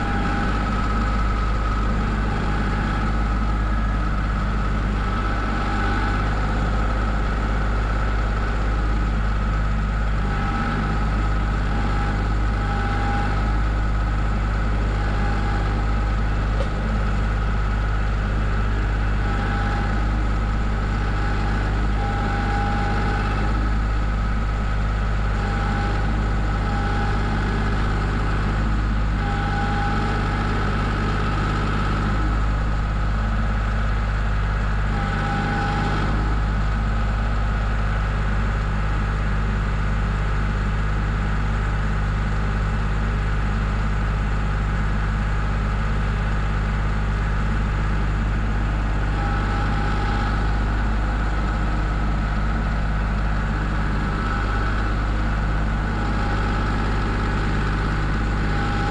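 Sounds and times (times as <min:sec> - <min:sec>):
short higher whines: 0:00.0 - 0:09.3, 0:10.2 - 0:33.1, 0:34.9 - 0:36.7, 0:48.8 - 0:58.9
tractor diesel engine idling: 0:00.0 - 0:58.9.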